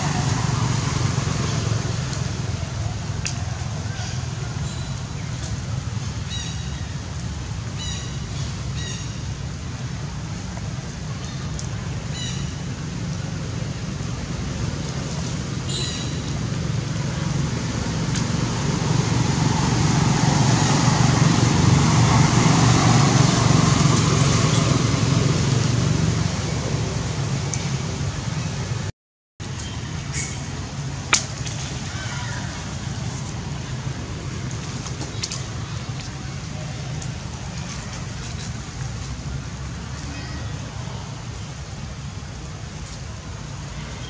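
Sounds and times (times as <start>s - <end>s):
vehicle passing: 0.0s - 4.7s, 16.4s - 28.8s
traffic hum: 0.0s - 44.0s.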